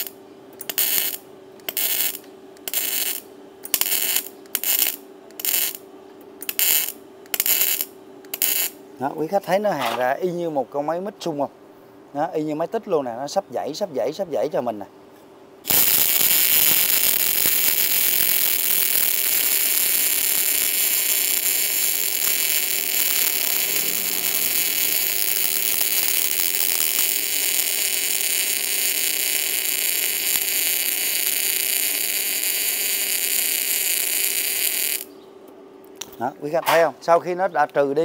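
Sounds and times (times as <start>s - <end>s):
welding arc crackling hiss: 0.0s - 5.8s, 6.4s - 8.8s, 15.7s - 35.1s.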